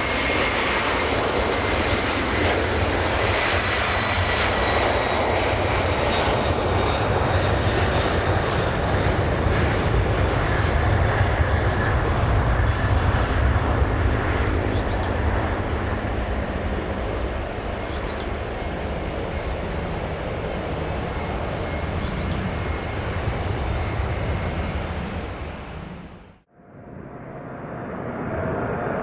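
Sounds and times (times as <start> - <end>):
approaching jet engines whining: 0.0 - 29.0
jet engines roaring at takeoff: 0.0 - 29.0.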